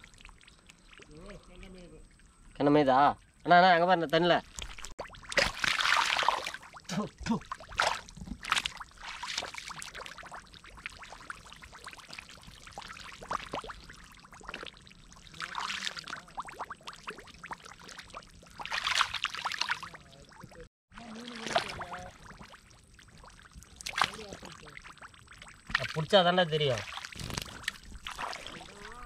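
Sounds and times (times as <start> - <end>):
hands splashing in muddy water: 4.6 - 6.8, 7.4 - 13.8, 14.4 - 16.6, 18.5 - 20.0, 21.2 - 22.4, 23.7 - 24.9, 26.7 - 29.0.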